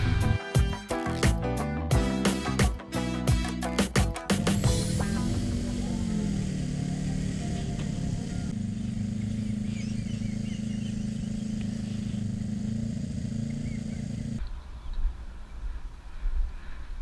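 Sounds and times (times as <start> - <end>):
motorcycle engine at low revs: 4.3 - 14.4.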